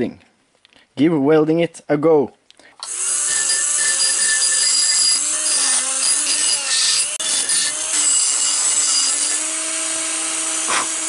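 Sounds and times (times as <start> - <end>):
die grinder whining: 2.8 - 11.0.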